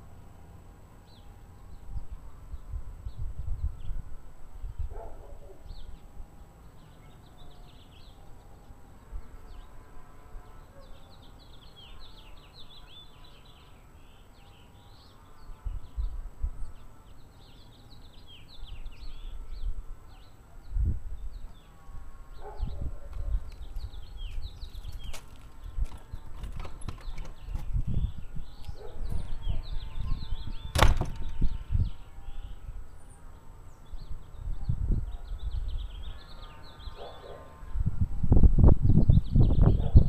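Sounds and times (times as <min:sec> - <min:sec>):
small birds chirping: 0:00.0 - 0:37.8, 0:38.8 - 0:40.0
wind rumble on microphone: 0:01.1 - 0:07.1, 0:15.4 - 0:17.3, 0:18.1 - 0:40.0.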